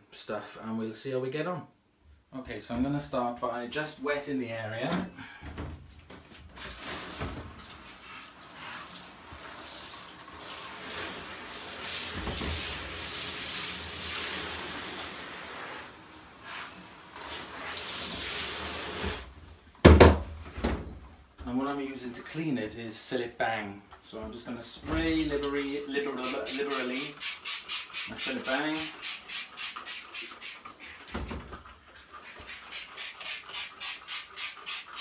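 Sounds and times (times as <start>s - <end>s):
shower spraying on tiles: 6.6s - 19.3s, 25.2s - 31.3s, 31.9s - 35.0s
loud knock: 19.8s - 20.2s.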